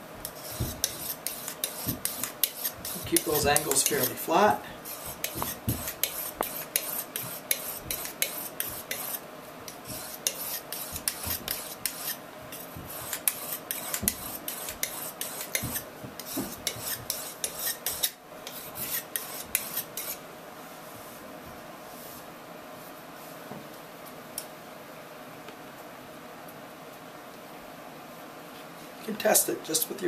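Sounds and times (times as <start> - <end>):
knife rasping on sharpening stone: 0.2 - 20.2.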